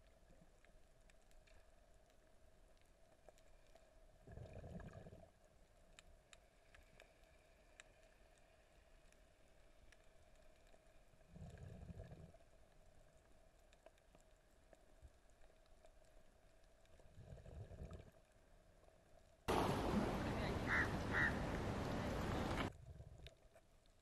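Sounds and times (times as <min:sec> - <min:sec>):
surges of water noise: 0:19.5 - 0:22.8.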